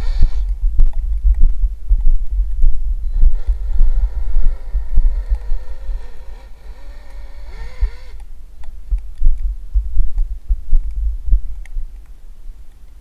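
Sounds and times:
electric motor whining: 0.0s - 0.6s, 3.1s - 8.3s.

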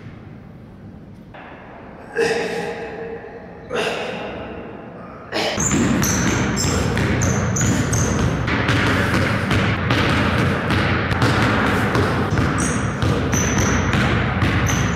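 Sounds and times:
sneaker squeaks: 5.6s - 9.2s, 11.7s - 14.9s
basketball bouncing on hardwood: 5.6s - 14.9s.

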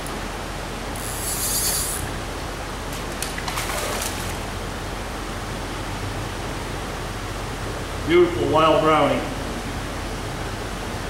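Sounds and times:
splashing in water: 2.9s - 4.5s.

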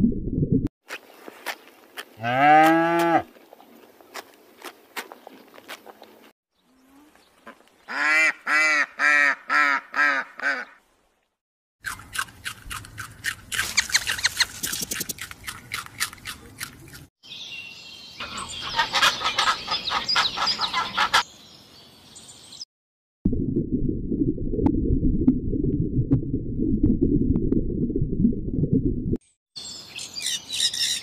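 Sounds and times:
goose honking: 18.6s - 21.2s
kestrel high sharp calls: 29.9s - 31.0s.

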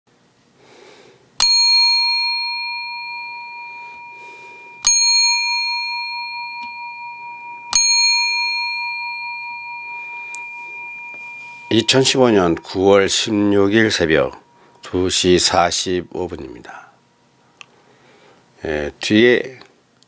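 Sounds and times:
small metal bell ringing: 1.4s - 15.8s.

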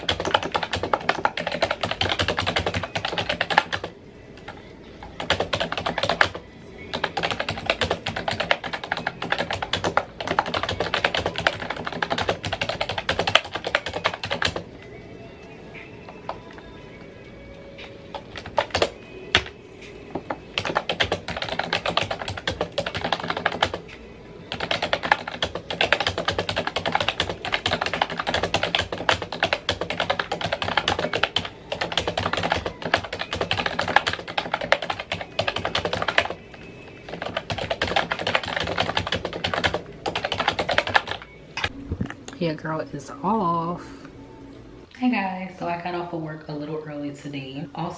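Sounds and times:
fast typing on keyboard: 0.0s - 14.7s, 18.1s - 19.5s, 20.2s - 23.8s, 24.5s - 41.3s.

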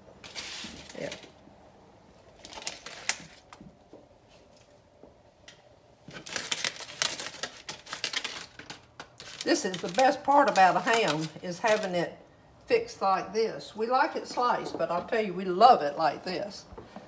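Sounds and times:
aluminium foil crinkling: 0.2s - 1.4s, 2.3s - 3.6s, 6.1s - 12.2s.

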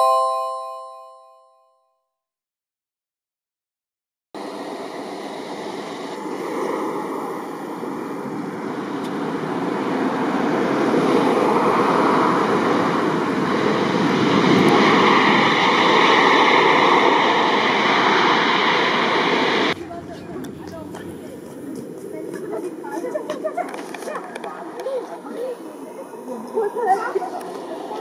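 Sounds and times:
jet engine roar on landing: 4.4s - 19.8s.

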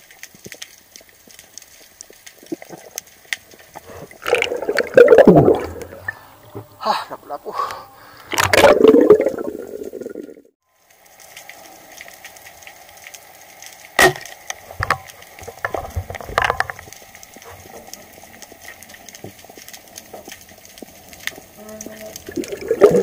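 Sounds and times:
sharp underwater clicks: 0.0s - 6.7s
underwater crackle of fine clicks: 0.0s - 6.7s, 10.8s - 23.0s
water sound: 0.0s - 23.0s.

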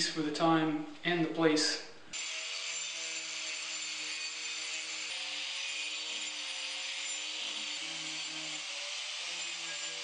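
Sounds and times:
angle grinder grinding wood: 2.1s - 10.0s.

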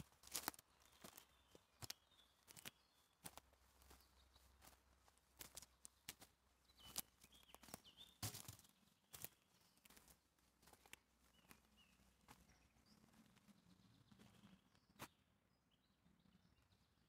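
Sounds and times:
footsteps on twigs: 0.0s - 12.5s
faint bird chirps: 6.6s - 10.2s, 10.8s - 17.0s.

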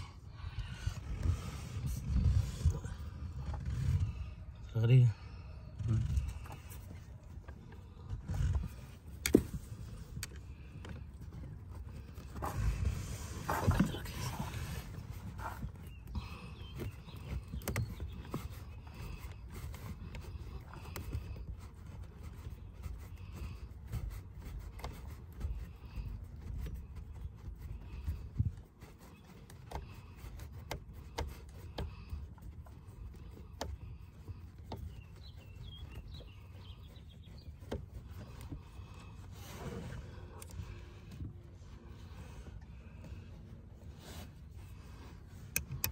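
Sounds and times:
small metallic clicks: 45.5s - 45.9s.

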